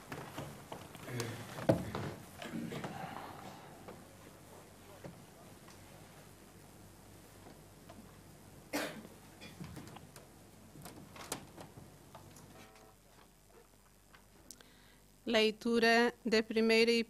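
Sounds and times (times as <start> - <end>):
faint footsteps: 0.0 - 8.3.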